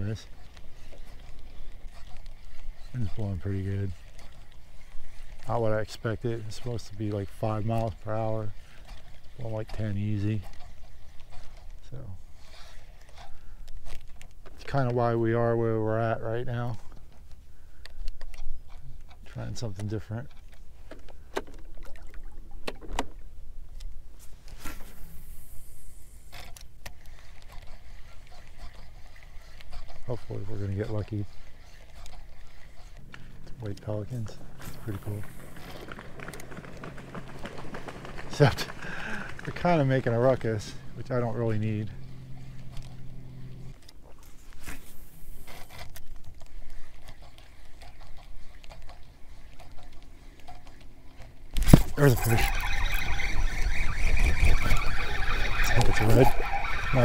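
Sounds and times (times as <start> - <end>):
fishing reel clicking: 0.0 - 15.5, 24.9 - 36.5, 38.3 - 57.0
reel whirring: 0.0 - 57.0
line paying off spool hiss: 24.5 - 26.3
fish splashing commotion: 51.5 - 57.0.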